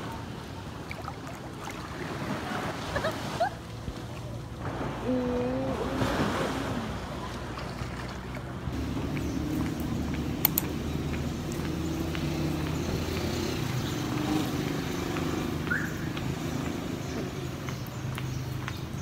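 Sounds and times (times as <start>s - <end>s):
vehicle engine rumbling: 3.7s - 19.0s
sharp clicks: 10.4s - 11.6s.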